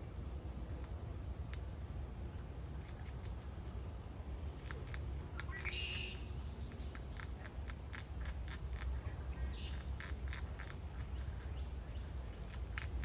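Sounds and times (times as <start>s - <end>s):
squirrel gnawing nut shell: 2.7s - 3.7s, 4.3s - 13.0s.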